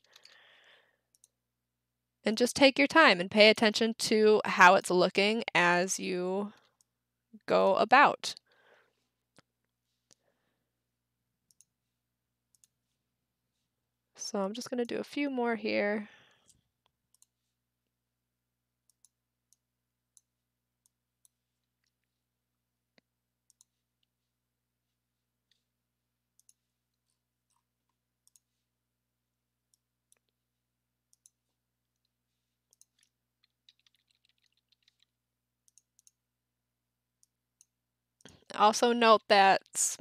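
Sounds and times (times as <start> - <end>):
computer mouse clicks: 1.1 - 1.4, 11.5 - 11.7, 12.5 - 12.8, 16.4 - 17.3, 18.9 - 22.0, 23.5 - 23.8, 26.4 - 27.6, 28.2 - 28.6, 31.1 - 31.4, 32.7 - 36.2.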